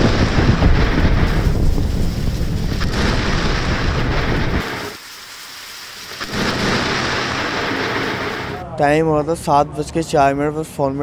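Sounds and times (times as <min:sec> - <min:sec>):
thunder rumbling: 0:00.0 - 0:05.0, 0:06.2 - 0:08.6
heavy rain: 0:00.0 - 0:08.6.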